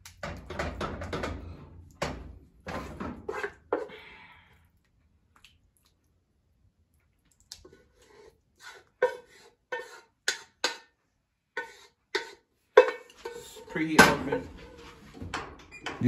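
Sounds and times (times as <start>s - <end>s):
wooden spoon knocking metal pot: 0.2s - 1.4s.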